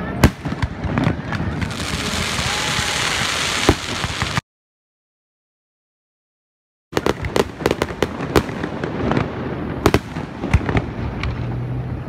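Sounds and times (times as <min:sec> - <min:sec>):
fireworks bangs: 0:00.0 - 0:04.4, 0:07.0 - 0:12.0
fireworks crackling: 0:00.0 - 0:04.4, 0:07.0 - 0:12.0.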